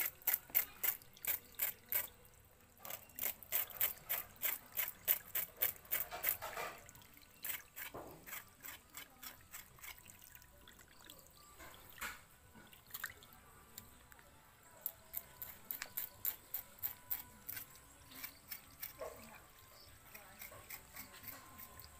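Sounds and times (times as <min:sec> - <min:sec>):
knife scraping wet carcass: 0:00.0 - 0:02.2, 0:02.8 - 0:10.2, 0:14.8 - 0:19.2, 0:19.8 - 0:21.9
dripping water: 0:00.1 - 0:14.2.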